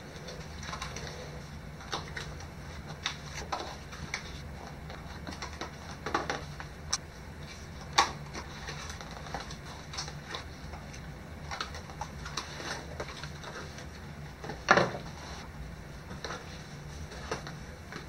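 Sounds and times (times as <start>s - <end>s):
steady low hum: 0.0s - 18.0s
cardboard and paper rustling: 7.4s - 18.0s.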